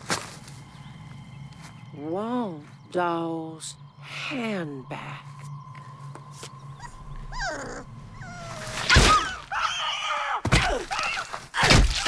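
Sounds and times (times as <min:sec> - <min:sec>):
small dog yelping: 0:06.8 - 0:10.2.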